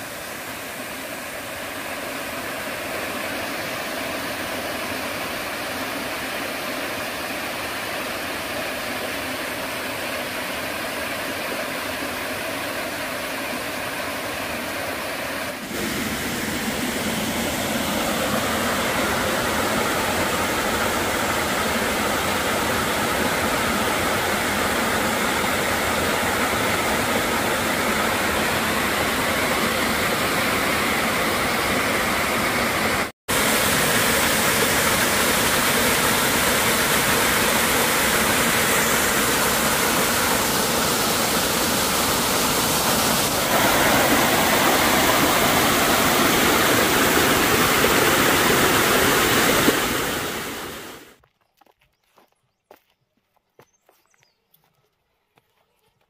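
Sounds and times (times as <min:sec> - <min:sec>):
waterfall pouring over rocks: 0:00.0 - 0:51.1
stream water rushing: 0:00.0 - 0:51.2.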